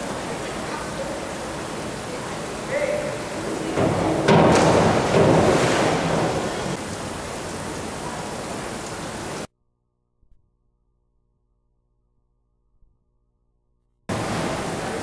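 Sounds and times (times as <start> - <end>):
echoing pool hall noise: 0.0 - 9.5, 14.1 - 15.0.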